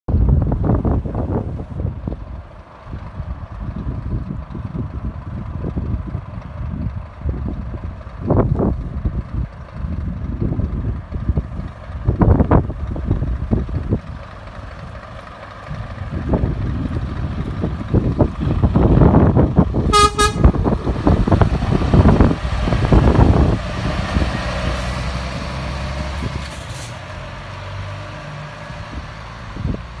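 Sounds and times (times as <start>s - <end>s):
truck engine driving past: 0.2s - 30.0s
truck horn toots: 19.9s - 20.8s.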